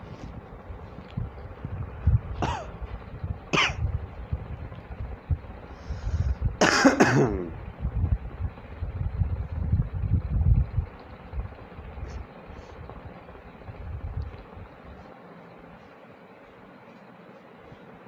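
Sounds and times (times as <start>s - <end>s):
low rumble: 0.0s - 6.7s, 7.4s - 15.0s
person coughing: 2.4s - 2.8s, 3.6s - 3.8s, 6.6s - 7.6s.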